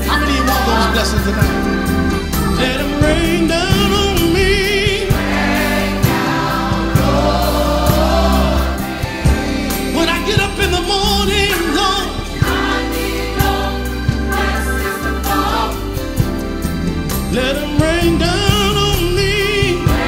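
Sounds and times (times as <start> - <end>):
voices singing long notes: 0.0 - 16.4
band playing: 0.0 - 20.0
choir singing: 0.0 - 20.0
steady drum beat: 0.0 - 20.0.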